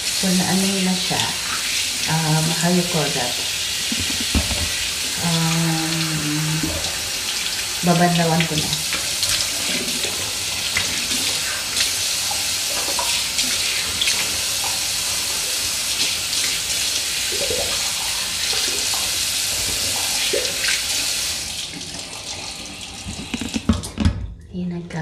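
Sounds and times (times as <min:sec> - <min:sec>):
sink tap running: 0:00.0 - 0:24.3
water splashing on face: 0:03.4 - 0:14.8.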